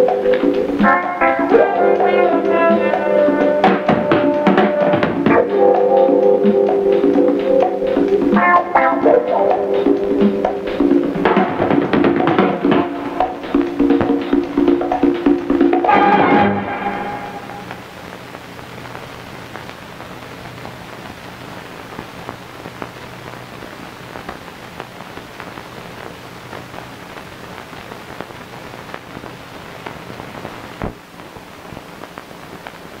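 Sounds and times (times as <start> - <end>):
crackles and pops: 0.0 - 33.0
film soundtrack hiss: 0.0 - 33.0.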